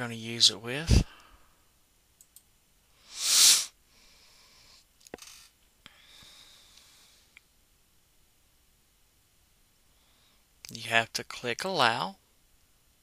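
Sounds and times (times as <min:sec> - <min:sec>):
faint mouse clicks: 0:02.2 - 0:02.5
breath close to microphone: 0:03.0 - 0:04.9, 0:05.9 - 0:07.4.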